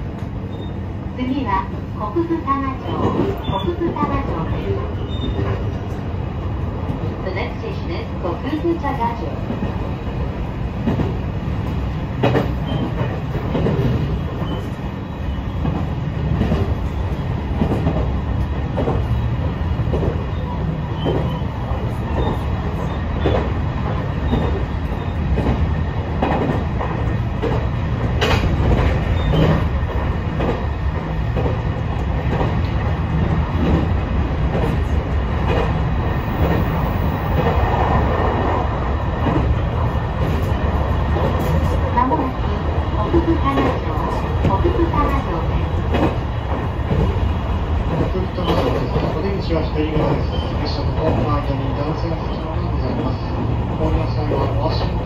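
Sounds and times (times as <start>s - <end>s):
train wheels rumbling on rail: 0.0s - 55.0s
track clicks and knocks: 25.3s - 38.0s.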